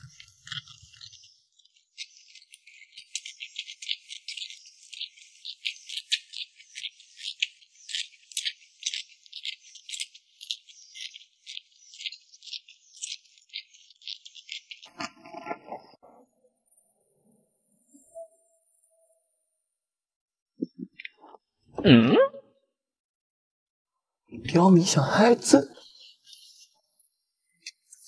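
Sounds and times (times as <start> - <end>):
wet food and gloves crackling: 0.0 - 16.0.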